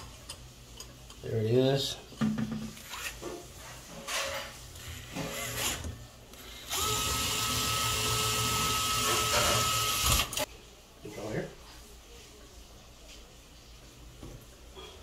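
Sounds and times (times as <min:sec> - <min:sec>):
cordless screwdriver running: 0:06.6 - 0:10.4.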